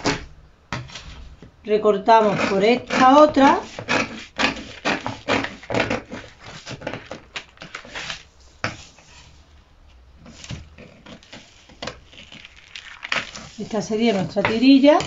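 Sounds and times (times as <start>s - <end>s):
scissors cutting paper: 2.3s - 8.2s.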